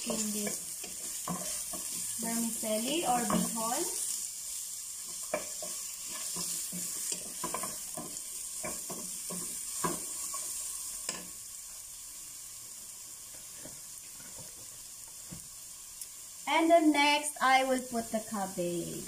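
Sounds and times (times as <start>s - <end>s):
wooden spatula scraping pot: 0.0s - 2.2s, 5.0s - 10.5s
vegetables sizzling in oil: 0.0s - 19.0s.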